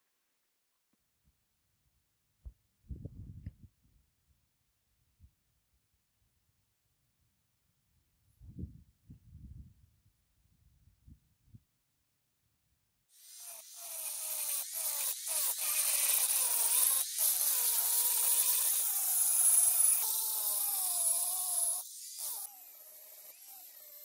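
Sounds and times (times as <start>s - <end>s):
angle grinder grinding steel: 13.2s - 24.0s.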